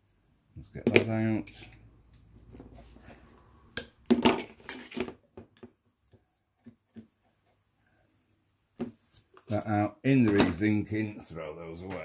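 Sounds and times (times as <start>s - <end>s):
metal parts and tools clinking: 1.3s - 1.9s, 3.2s - 5.2s.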